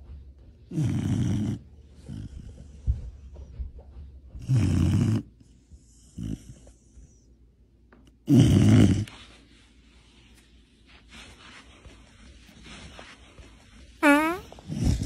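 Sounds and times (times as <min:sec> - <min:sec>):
dog snoring: 0:00.7 - 0:02.7, 0:04.4 - 0:07.2, 0:08.2 - 0:09.2.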